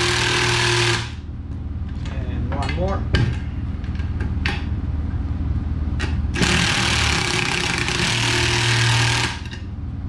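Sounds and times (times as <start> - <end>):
cordless drill running: 0.0 - 1.2, 6.4 - 9.4.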